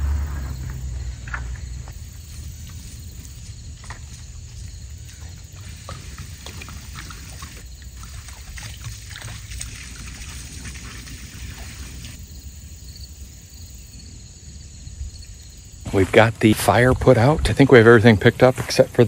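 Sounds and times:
water pouring on hot coals: 5.5 - 12.2
fire sizzling and crackling: 9.4 - 12.3.

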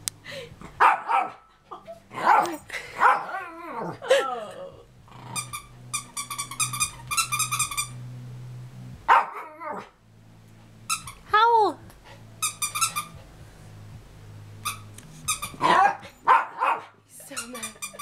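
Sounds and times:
toy squeaking: 5.4 - 8.0, 10.9 - 11.2, 12.4 - 13.2, 14.6 - 15.6, 17.2 - 18.0.

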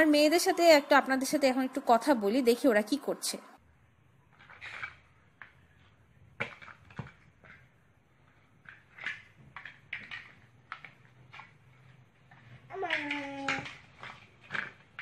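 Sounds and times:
plastic blocks clicking: 6.4 - 15.0.

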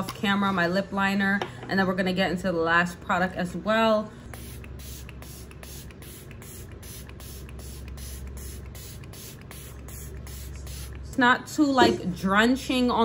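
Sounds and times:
spray bottle hissing sprays: 4.3 - 11.2.

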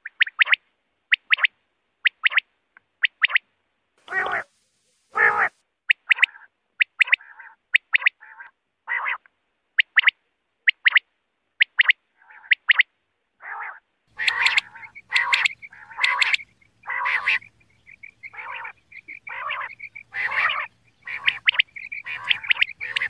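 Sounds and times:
quail calling: 3.0 - 3.4, 4.0 - 4.5, 5.1 - 11.0, 11.6 - 23.0
faint low hum: 14.1 - 23.0.

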